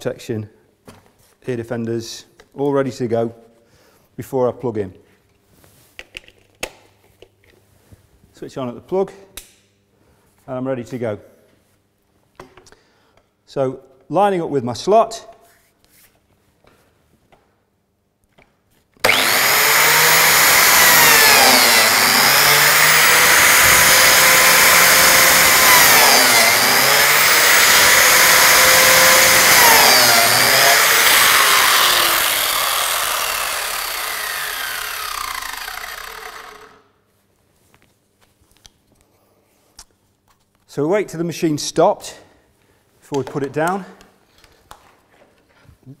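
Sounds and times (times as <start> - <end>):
biscuit jointer whining: 19.0 - 36.8.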